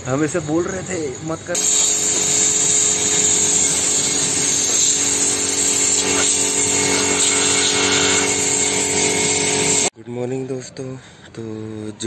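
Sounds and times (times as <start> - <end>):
air blow gun hissing: 1.6 - 9.9.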